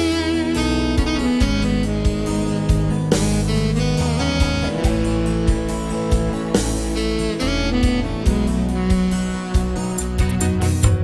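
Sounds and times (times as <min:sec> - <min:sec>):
keyboard melody: 0:00.0 - 0:11.0
steady drum beat: 0:00.0 - 0:11.0.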